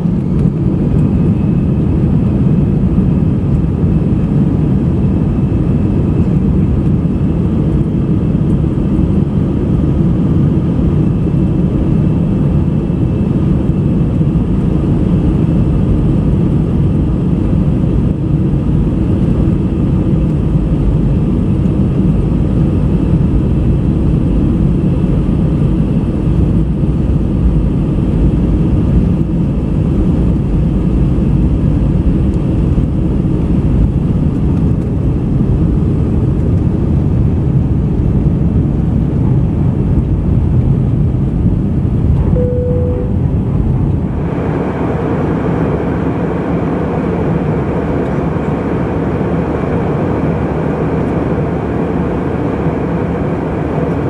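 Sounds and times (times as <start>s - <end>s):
jet engine rumble in cabin: 0.0s - 54.0s
faint high whine: 42.2s - 50.1s.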